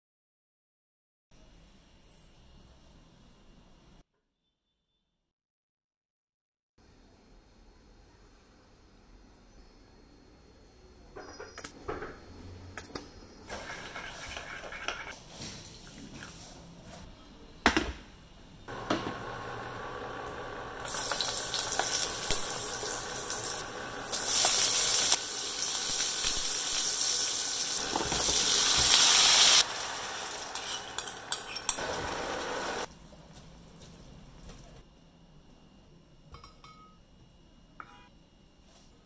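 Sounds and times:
oil sizzling in a frying pan: 13.5s - 14.7s, 18.7s - 32.9s.

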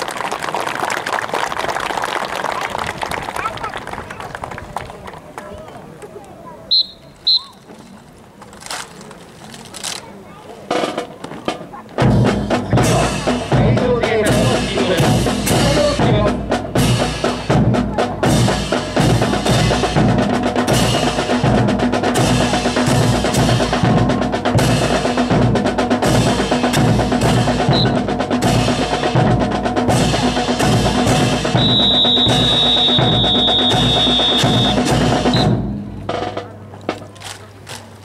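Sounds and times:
rifles clacking: 7.6s - 10.1s, 36.7s - 38.0s
drum-led music: 10.6s - 38.0s.

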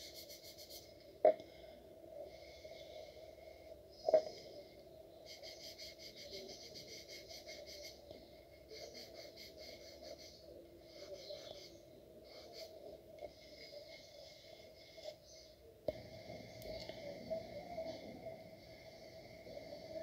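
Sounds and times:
pencil scratching on paper: 0.0s - 1.0s, 5.3s - 15.5s
steady low hum: 0.0s - 20.0s.

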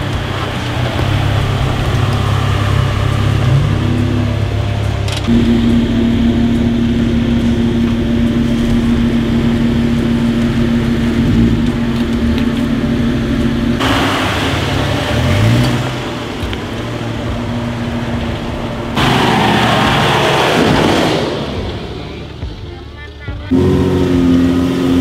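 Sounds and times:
car engine revving under load: 0.0s - 25.0s.

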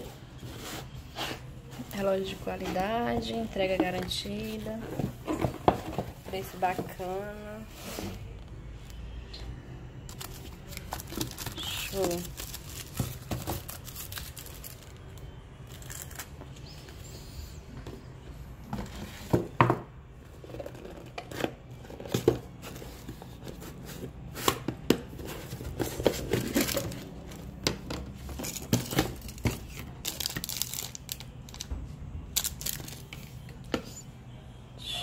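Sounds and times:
plastic and bubble wrap crinkling: 0.3s - 8.3s, 10.1s - 16.8s, 25.1s - 31.7s, 32.3s - 33.6s
boxes knocking and clicking: 2.6s - 7.1s, 18.8s - 29.7s.

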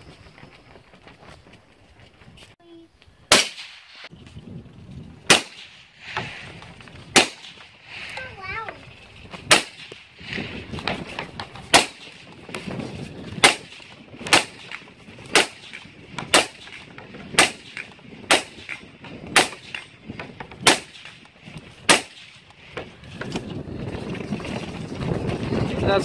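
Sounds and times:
suppressed rifle shots: 5.3s - 6.4s, 7.1s - 7.7s, 9.5s - 10.1s, 13.4s - 19.9s, 21.9s - 22.4s.

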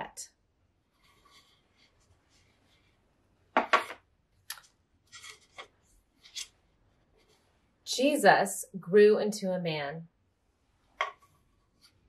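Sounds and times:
stiff paper cards rustling: 4.5s - 6.6s.

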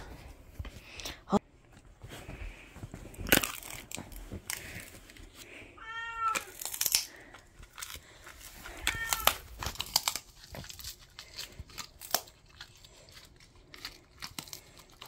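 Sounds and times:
dog chewing a treat: 9.7s - 15.0s.

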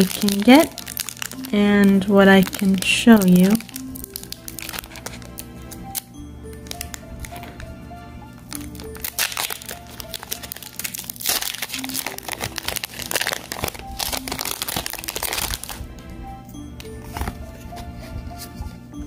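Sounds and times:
foil wrapper crinkling: 0.0s - 7.7s, 8.4s - 15.9s
background music: 0.0s - 19.0s.

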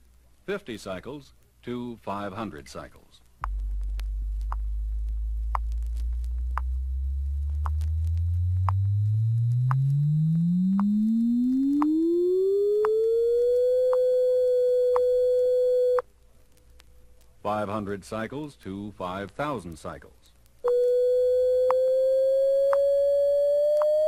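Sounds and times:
record surface clicks: 3.4s - 12.1s
rising test tone sweep: 3.4s - 16.0s, 20.7s - 24.0s.

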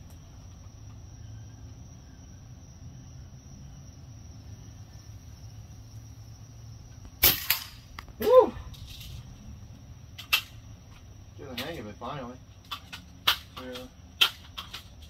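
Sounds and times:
airgun shot: 7.1s - 8.4s.

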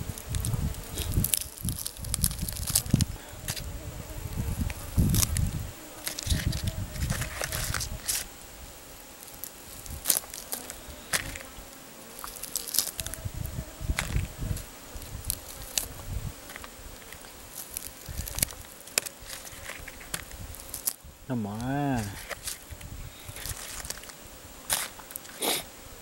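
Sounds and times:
faint insect buzz: 0.0s - 26.0s
crackling skin and bone snapping: 0.1s - 3.7s, 4.3s - 8.3s, 9.2s - 21.0s, 21.6s - 25.6s
chewing: 0.2s - 3.6s, 12.1s - 13.2s, 15.3s - 15.9s.

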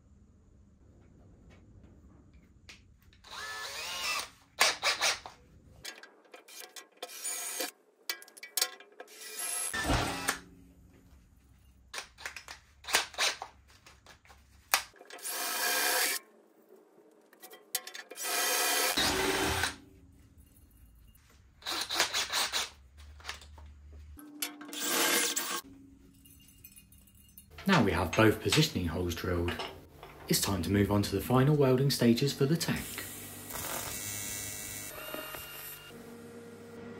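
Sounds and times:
drill drilling into aluminium: 3.2s - 5.2s, 18.2s - 19.8s.

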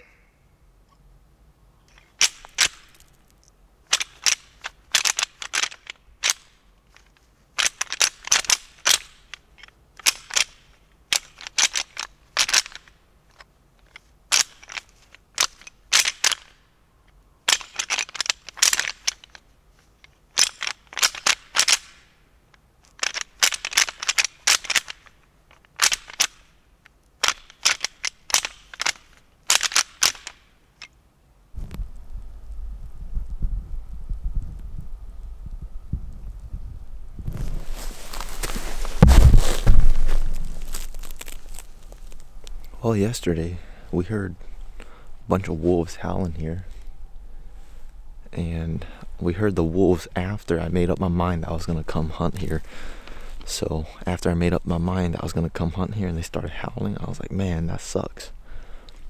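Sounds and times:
antlers clacking and rattling: 3.9s - 16.6s, 17.5s - 19.4s, 20.0s - 22.1s, 22.9s - 26.6s, 27.2s - 31.0s.

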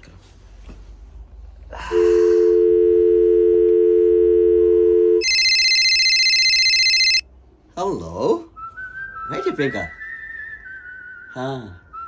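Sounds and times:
high-pitched steady tone: 2.0s - 7.2s
two-note dial tone: 2.0s - 7.2s.

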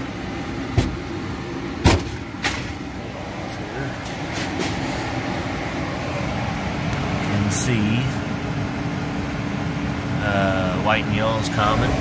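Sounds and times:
hvac equipment humming: 0.0s - 12.0s
sharp knocks: 0.7s - 1.0s.

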